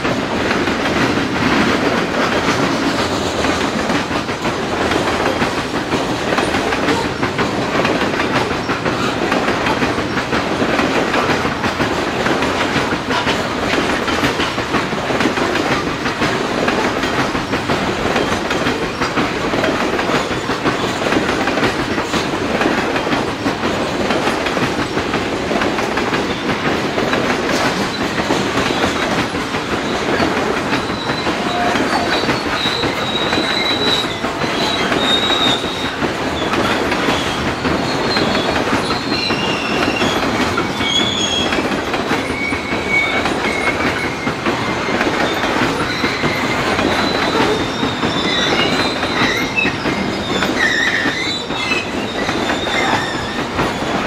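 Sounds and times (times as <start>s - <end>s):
freight train rumbling past: 0.0s - 54.0s
high-pitched wheel squeals: 37.1s - 41.6s, 45.8s - 54.0s.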